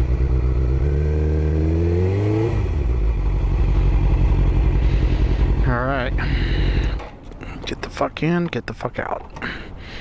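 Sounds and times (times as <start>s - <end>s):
motorcycle engine revving and idling: 0.0s - 7.0s.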